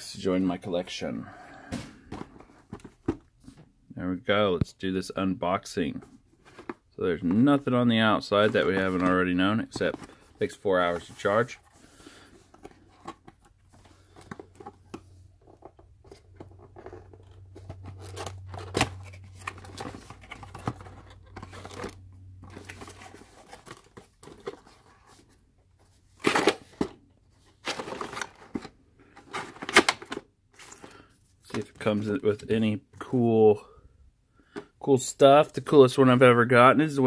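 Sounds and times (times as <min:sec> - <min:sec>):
cardboard and paper rustling: 0:01.7 - 0:03.6, 0:05.9 - 0:32.2.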